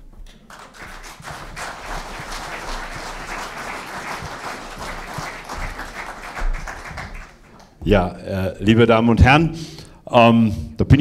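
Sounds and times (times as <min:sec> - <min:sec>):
audience applauding: 0:00.3 - 0:07.8.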